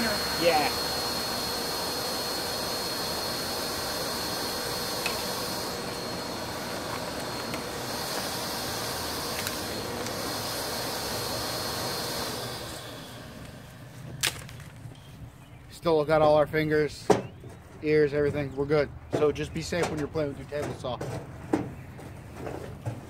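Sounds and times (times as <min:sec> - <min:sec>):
shop vacuum running: 0:00.0 - 0:14.8.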